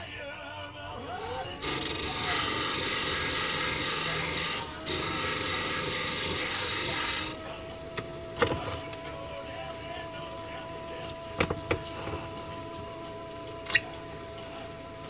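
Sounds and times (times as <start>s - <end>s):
lathe motor hum: 0.9s - 15.0s
file rasping on brass: 1.6s - 7.3s.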